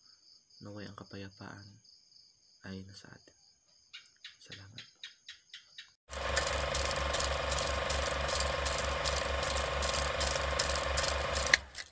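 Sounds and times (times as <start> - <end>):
film projector whirring clatter: 6.1 - 11.9.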